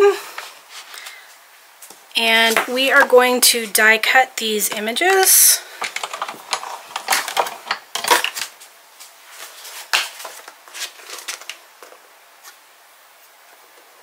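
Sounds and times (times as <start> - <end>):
paper tools clicking and rustling: 5.8 - 8.5, 9.4 - 12.0.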